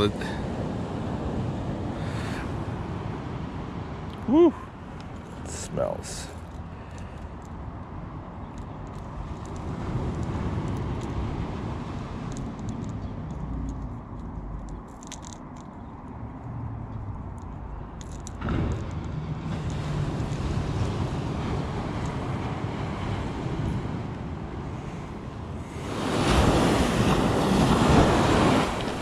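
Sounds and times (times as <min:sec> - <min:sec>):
ocean surf on beach: 0:00.0 - 0:07.8, 0:09.0 - 0:13.3, 0:18.4 - 0:29.0.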